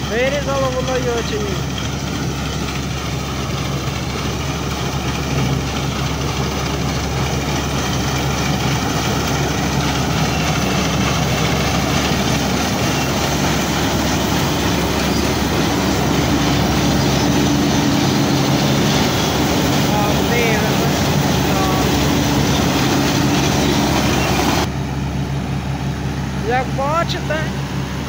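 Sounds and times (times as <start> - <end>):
threshing machinery rushing: 0.0 - 24.7
combine harvester engine drone: 0.0 - 28.0.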